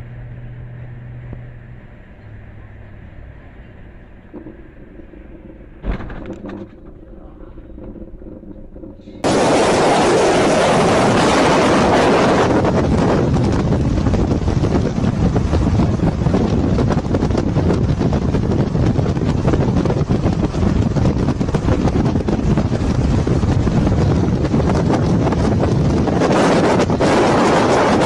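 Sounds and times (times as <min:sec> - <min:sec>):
car engine and road drone: 0:00.0 - 0:28.0
wind rushing on microphone: 0:04.0 - 0:28.0
loud crash thump: 0:05.8 - 0:06.9.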